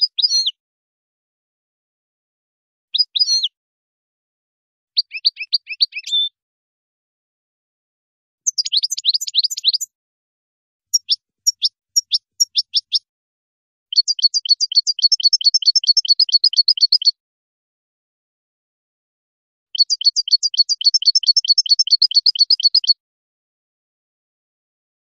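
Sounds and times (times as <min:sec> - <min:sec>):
goldfinch singing: 0:05.0 - 0:06.3, 0:08.5 - 0:09.9, 0:10.9 - 0:13.0, 0:13.9 - 0:17.1, 0:19.8 - 0:23.0.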